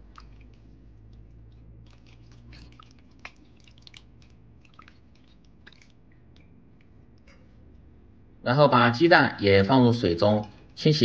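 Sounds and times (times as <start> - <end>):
hands sloshing tomatoes in water: 0.0 - 6.9.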